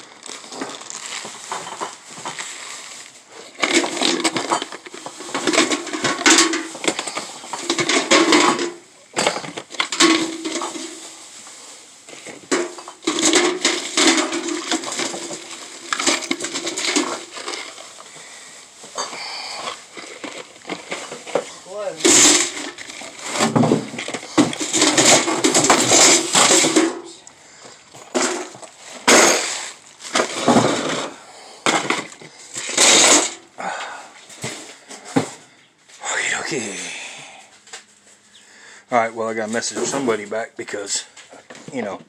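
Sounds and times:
plastic bags crinkling: 0.0 - 31.2
items knocking against metal can: 3.6 - 11.1, 12.1 - 17.7, 20.2 - 27.1, 28.0 - 33.4.

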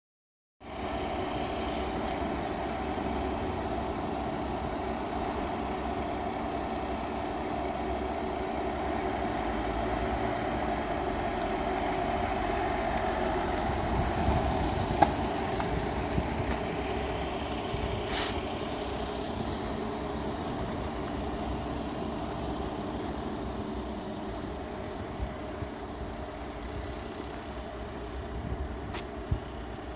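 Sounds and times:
vehicle engine idling: 0.6 - 29.9
short hiss: 18.0 - 18.5.

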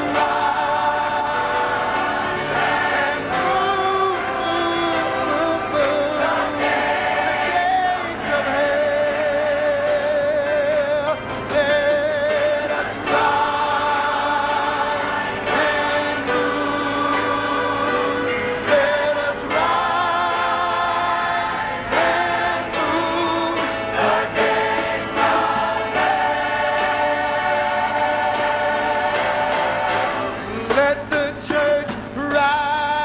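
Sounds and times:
choir singing gospel: 0.0 - 33.0
man singing into microphone: 3.3 - 6.6, 7.5 - 23.9, 30.4 - 33.0.

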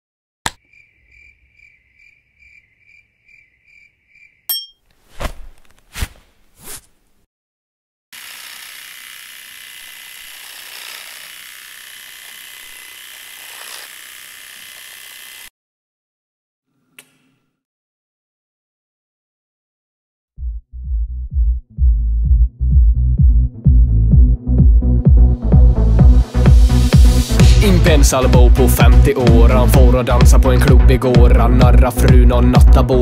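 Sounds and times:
electric shaver buzzing: 8.2 - 15.5.

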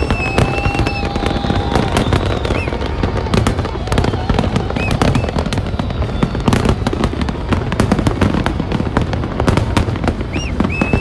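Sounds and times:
fireworks booming and crackling: 0.0 - 11.0
high firework whistle: 0.0 - 11.0.

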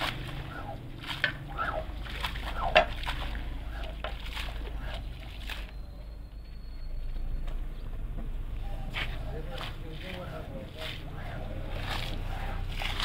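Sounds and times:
squeegee pushing water on rug: 0.0 - 5.7, 8.6 - 13.0
low steady hum: 0.0 - 13.0
water sloshing and splashing: 0.0 - 13.0.

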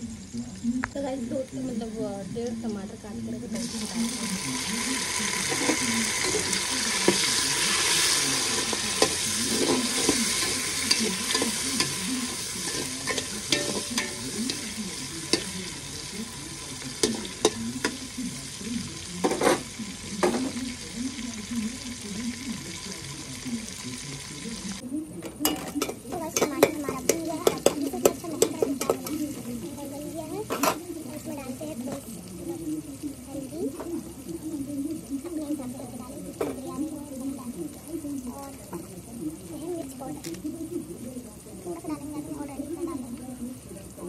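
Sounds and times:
tomatoes sizzling in oil: 0.0 - 44.0
metal spoon scraping pot: 5.4 - 15.6.

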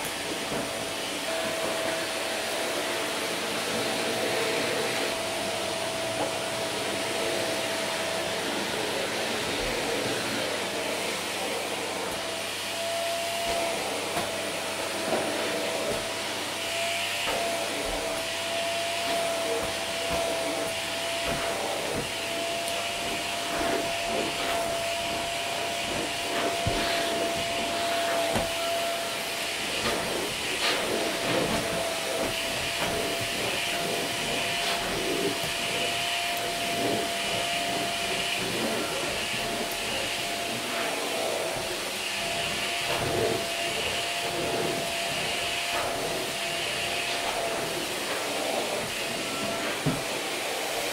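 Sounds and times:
vacuum cleaner running: 0.0 - 50.9.

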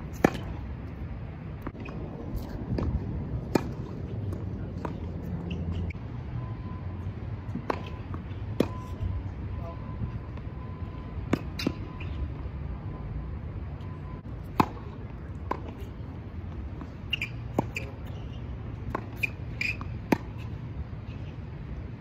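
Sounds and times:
tennis balls hit and bouncing: 0.0 - 6.0, 7.4 - 9.5, 11.2 - 12.5, 14.2 - 21.8
sneaker squeaks: 4.8 - 6.0, 10.9 - 12.4, 16.8 - 21.4.

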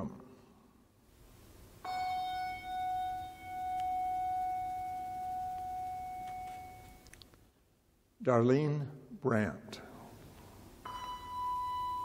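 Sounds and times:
bell ringing: 1.8 - 7.0, 10.8 - 12.0.

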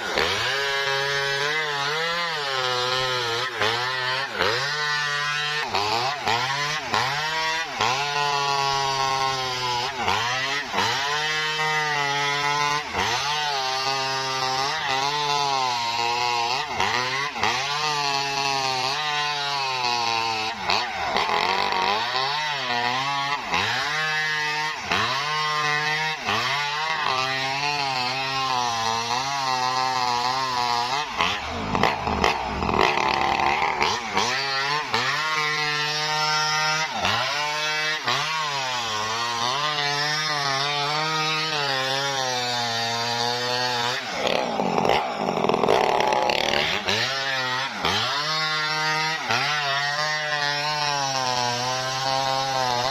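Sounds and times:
chainsaw cutting log at full throttle: 0.0 - 52.9.

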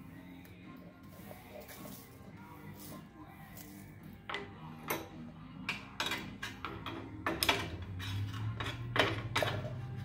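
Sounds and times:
hand tools clattering on metal: 4.3 - 9.8.

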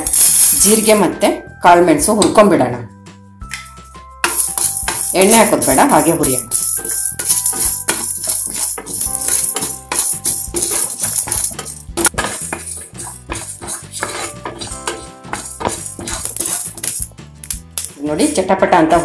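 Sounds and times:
spatula stirring: 4.2 - 17.2
seeds rattling in a pan: 4.3 - 12.5, 15.4 - 17.2.

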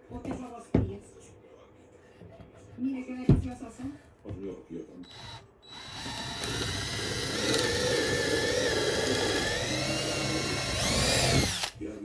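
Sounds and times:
power drill boring into wood: 5.1 - 11.8.

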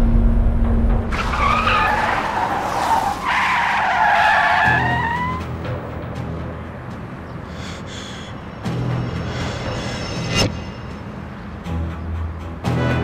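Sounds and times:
low rumble: 0.0 - 1.2
car tyres screeching: 1.1 - 6.0.

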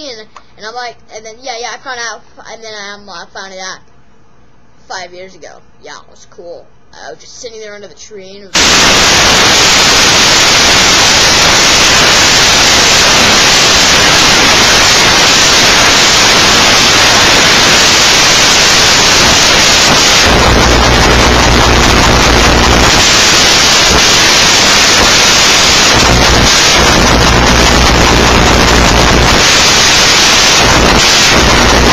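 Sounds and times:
low electrical hum: 0.0 - 31.9
static hiss: 8.5 - 31.9.

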